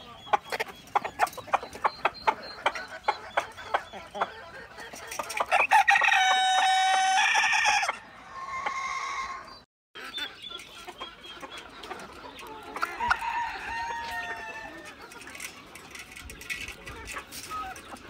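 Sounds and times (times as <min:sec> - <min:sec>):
chickens clucking: 0:00.0 - 0:18.0
rooster crowing: 0:05.6 - 0:09.4, 0:12.9 - 0:14.8.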